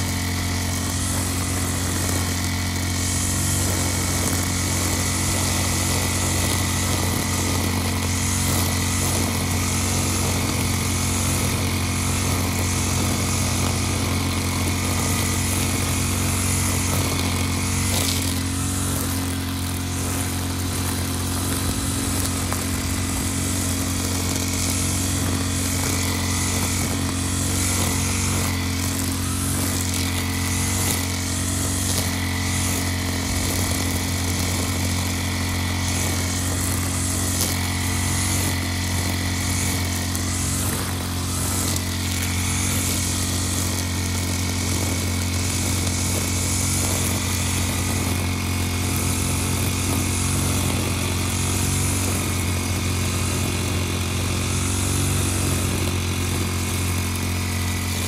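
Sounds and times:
brush cutter engine running: 0:00.0 - 0:58.0
cutting head sweeping through grass: 0:00.0 - 0:58.0.

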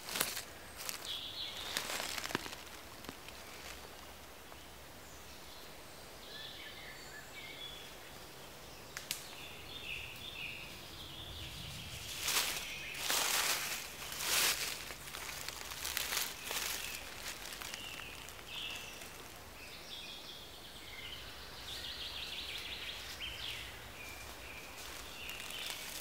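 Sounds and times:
footsteps crunching through leaves: 0:00.0 - 0:04.1, 0:11.6 - 0:19.7, 0:22.6 - 0:26.0
dry leaf litter rustling: 0:00.0 - 0:04.3, 0:11.4 - 0:20.0, 0:22.4 - 0:26.0
small birds chirping: 0:00.0 - 0:26.0.

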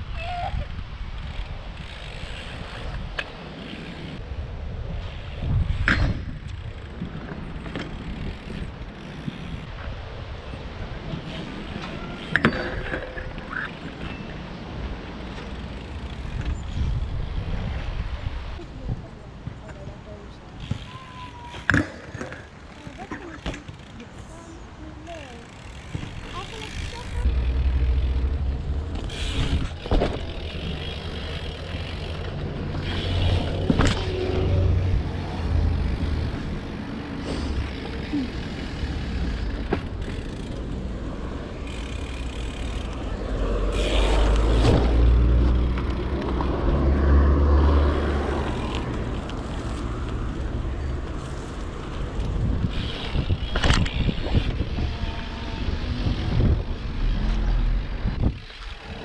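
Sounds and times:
wind buffeting microphone: 0:00.0 - 0:19.9, 0:25.5 - 0:47.0, 0:48.4 - 0:59.0
bike riding: 0:00.0 - 0:59.0
bike knocks and clatters: 0:05.6 - 0:09.3, 0:11.8 - 0:14.4, 0:20.6 - 0:24.0, 0:25.7 - 0:27.2, 0:28.9 - 0:34.6, 0:39.0 - 0:40.7, 0:52.2 - 0:54.9.

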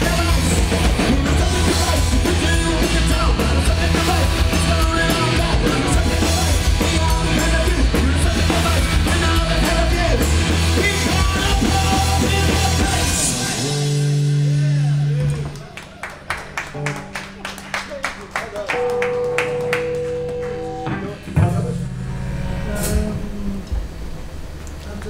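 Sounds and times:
person singing: 0:00.0 - 0:15.2, 0:22.6 - 0:23.9
bass guitar: 0:00.0 - 0:15.8, 0:18.6 - 0:25.0
drum kit: 0:00.0 - 0:15.8, 0:18.2 - 0:25.0
electric guitars: 0:00.0 - 0:25.0.

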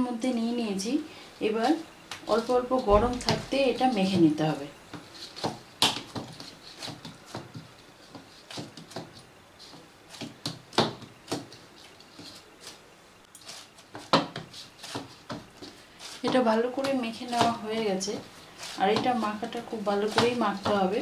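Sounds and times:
hands kneading dough: 0:01.4 - 0:21.0.

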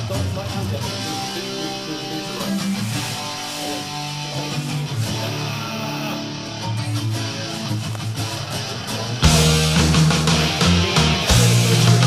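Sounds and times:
music with strummed guitars: 0:00.0 - 0:12.0.

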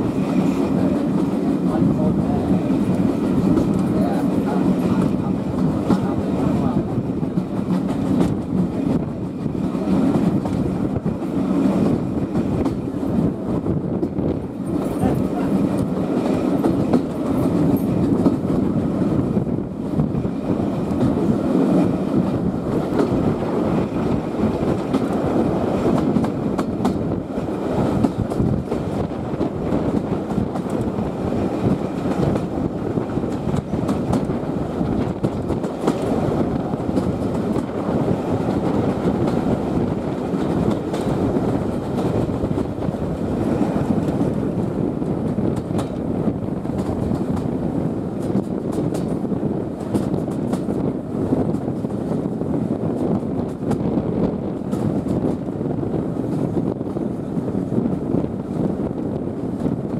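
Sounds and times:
train wheels rumbling on rails: 0:00.0 - 0:59.9
light clicks of rails: 0:48.2 - 0:49.2.

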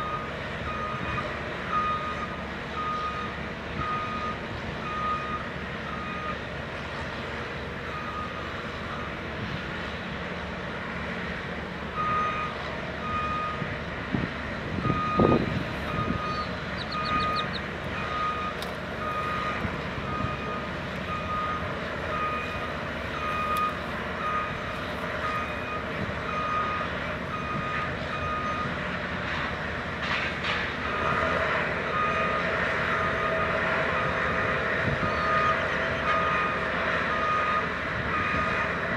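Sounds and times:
machinery rumble: 0:00.0 - 0:38.9
backup alarm beeping: 0:14.9 - 0:28.7.

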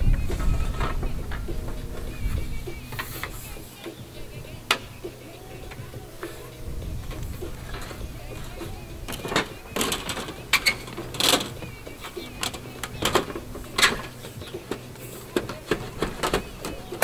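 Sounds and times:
clicks and knocks of panels: 0:07.0 - 0:17.0.

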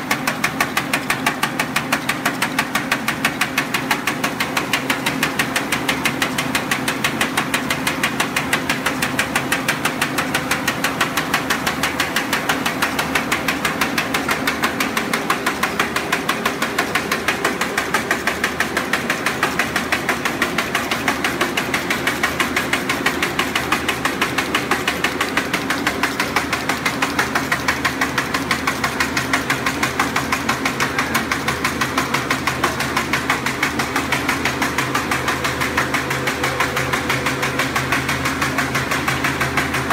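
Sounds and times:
paper bag machine clattering: 0:00.0 - 0:39.9.

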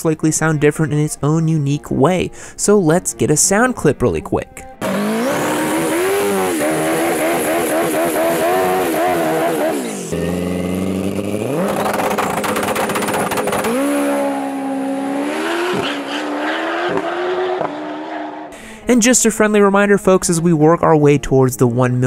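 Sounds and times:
motorcycle revving and accelerating: 0:04.8 - 0:18.6.

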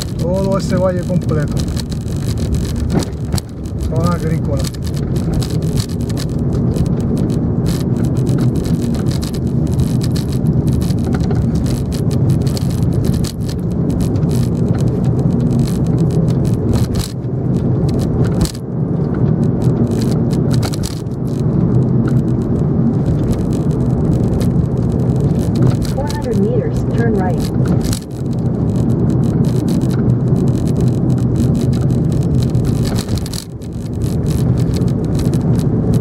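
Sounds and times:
knocks from road bumps: 0:00.0 - 0:26.6
car engine and tyre noise: 0:00.0 - 0:36.0.

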